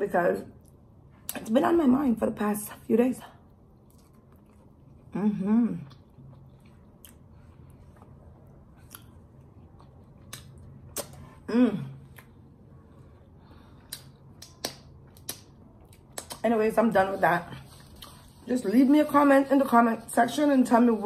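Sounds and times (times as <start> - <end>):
wet mouth clicks and lip smacks: 13.9 - 16.4.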